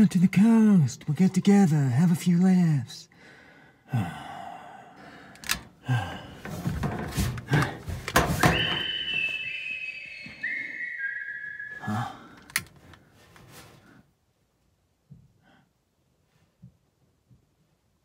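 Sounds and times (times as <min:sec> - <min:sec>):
high whistle held notes: 0:08.4 - 0:12.4.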